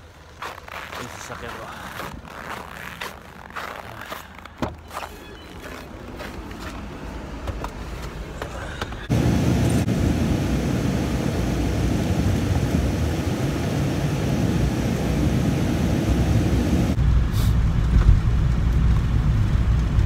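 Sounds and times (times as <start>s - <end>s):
engine and tyre rumble: 5.6s - 20.0s
heavy cab rumble: 7.3s - 20.0s.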